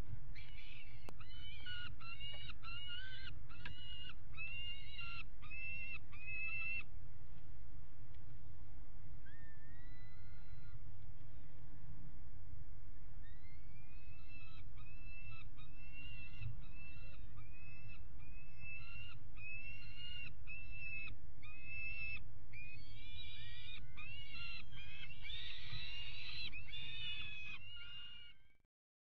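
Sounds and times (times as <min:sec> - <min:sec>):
young falcon begging calls: 0:00.3 - 0:06.9, 0:13.2 - 0:28.4.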